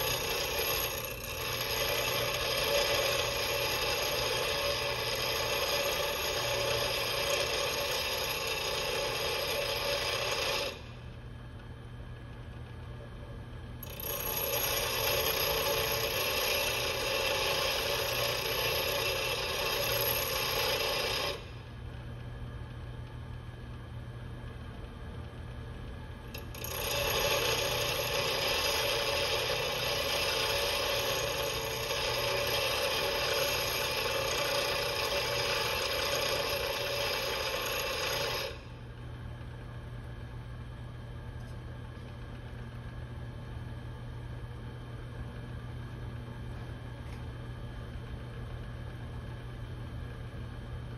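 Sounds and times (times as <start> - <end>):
grinding chisel on bench grinder: 0.0 - 11.1, 13.8 - 21.6, 26.3 - 38.9
grinder motor hum: 0.0 - 23.8, 24.4 - 50.9.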